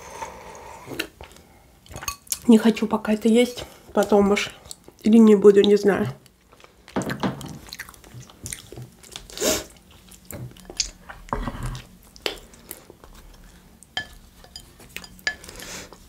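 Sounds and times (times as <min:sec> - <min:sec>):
chewing and crunching salad: 0:04.0 - 0:16.0.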